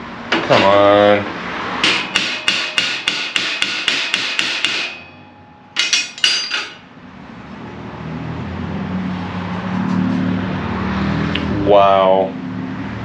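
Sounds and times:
hammer striking sheet metal: 1.8s - 6.9s.

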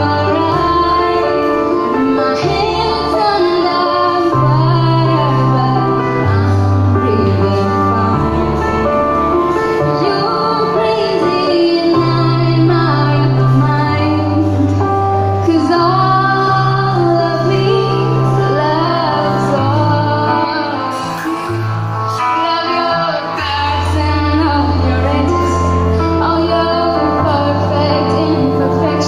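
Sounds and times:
woman singing a slow ballad: 0.0s - 29.0s.

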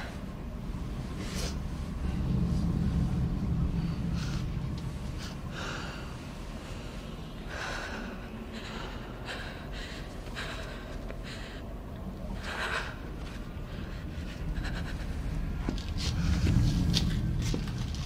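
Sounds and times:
low rumble: 0.0s - 18.0s
woman crying with gasping breaths: 7.5s - 15.6s.

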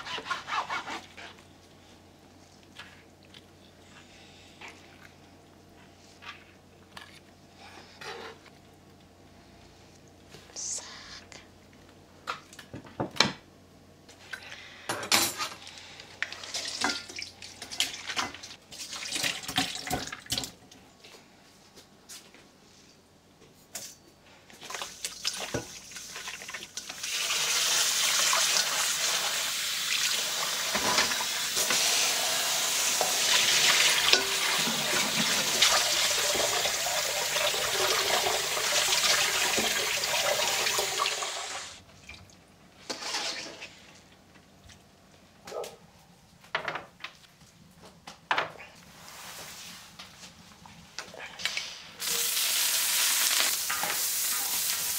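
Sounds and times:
tap running water: 25.0s - 41.7s.

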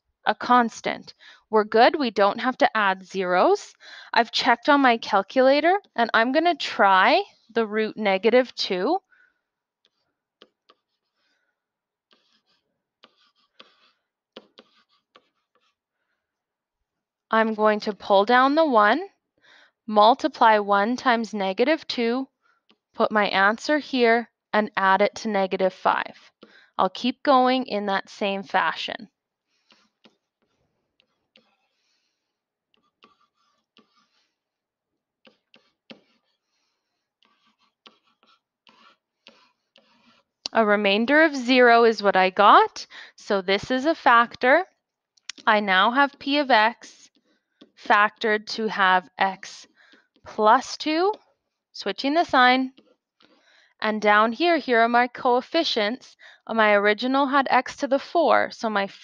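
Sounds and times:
stylus tapping and scratching: 9.8s - 11.4s, 12.0s - 15.9s, 29.4s - 42.6s, 45.2s - 54.4s.

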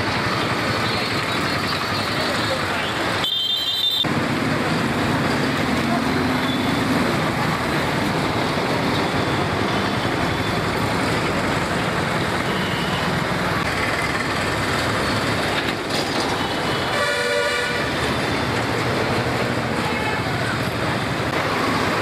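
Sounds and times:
road traffic noise: 0.0s - 22.0s
vehicle horn honking: 3.2s - 4.1s, 16.7s - 17.9s.

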